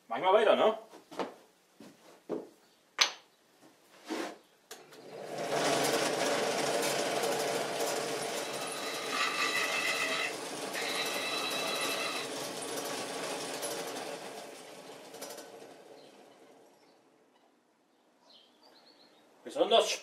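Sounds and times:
rotary tool milling wood: 4.9s - 16.9s.

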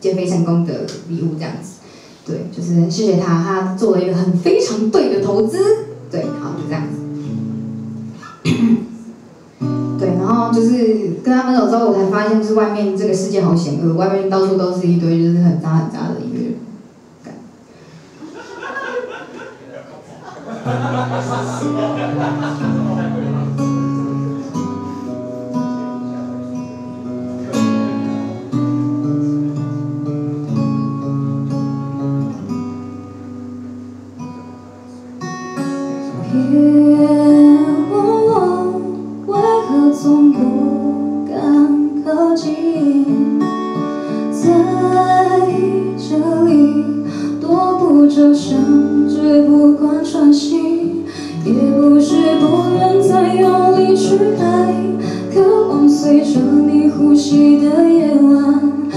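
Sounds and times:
acoustic guitar chords: 3.6s - 19.4s, 20.4s - 58.9s
woman singing: 9.9s - 16.6s, 36.1s - 58.9s.

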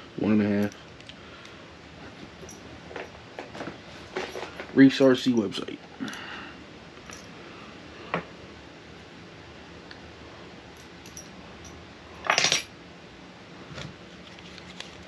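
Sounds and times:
metal bits clinking: 2.4s - 3.2s, 4.2s - 4.7s, 7.0s - 7.4s, 10.8s - 12.7s.

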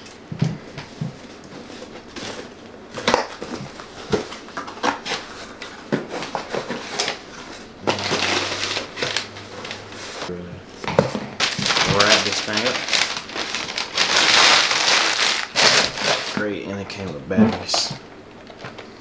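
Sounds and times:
cardboard and tape crackling: 0.0s - 18.9s
packing paper rustling: 1.0s - 10.3s, 11.1s - 16.6s.

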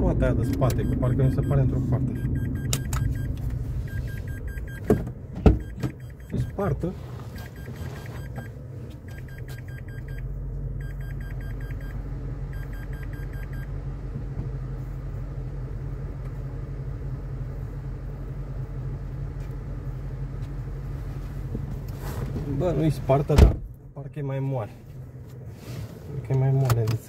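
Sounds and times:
truck engine humming: 0.0s - 23.9s
electronic warning chime beeping: 0.7s - 4.9s, 5.6s - 6.8s, 7.4s - 8.5s, 9.1s - 10.2s, 10.8s - 13.7s.

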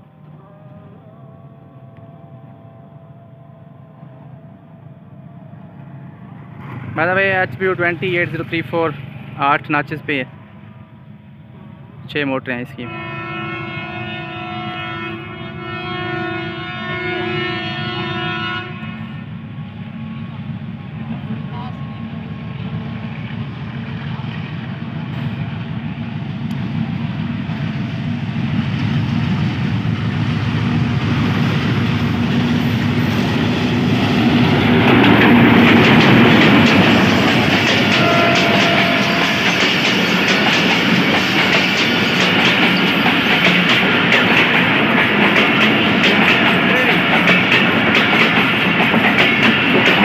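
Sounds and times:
locomotive engine rumbling: 0.0s - 50.0s
train wheels clattering on rails: 22.7s - 50.0s.

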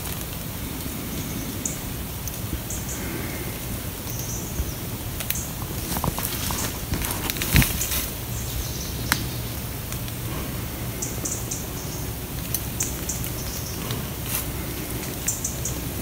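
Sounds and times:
rustling leaves: 0.0s - 16.0s
twigs snapping: 5.2s - 8.3s, 9.0s - 10.2s, 12.3s - 15.9s.

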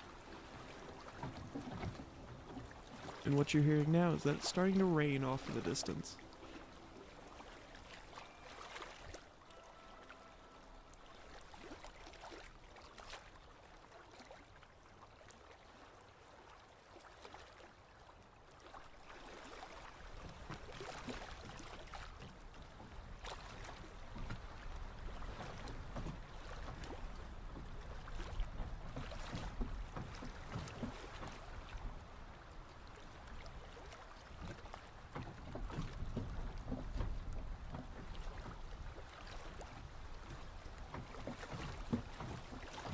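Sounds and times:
distant rain: 0.0s - 7.8s
boat at a dock: 0.0s - 42.9s
waves: 0.0s - 42.9s
wind: 0.0s - 42.9s.

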